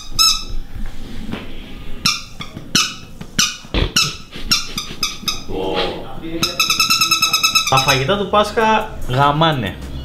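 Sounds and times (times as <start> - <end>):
rubber squeeze toy squeaks: 0.0 - 0.5, 2.0 - 5.5, 6.4 - 8.0.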